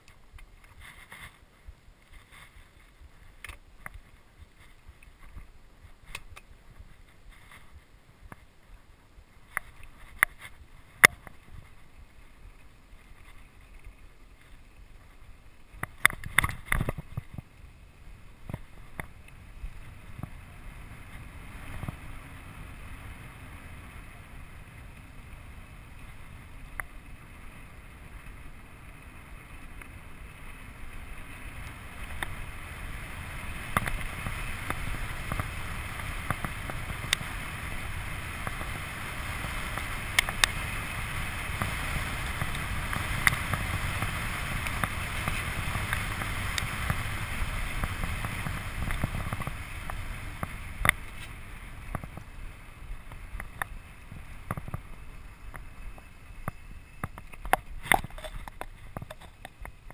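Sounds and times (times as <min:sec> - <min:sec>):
bike rolling over dirt track: 0:09.4 - 0:59.9
wind rushing on microphone: 0:14.8 - 0:59.9
bike rattling and knocking: 0:33.2 - 0:52.3.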